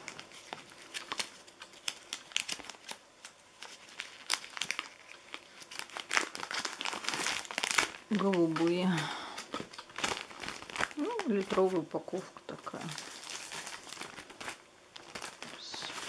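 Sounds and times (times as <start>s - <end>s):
plastic bags crinkling: 0.0s - 16.0s.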